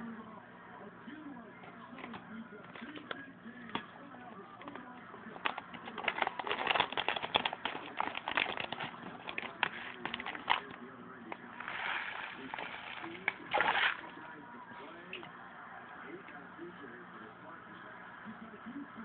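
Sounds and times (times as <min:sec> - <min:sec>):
fish splashing and slurping: 0:11.6 - 0:14.1.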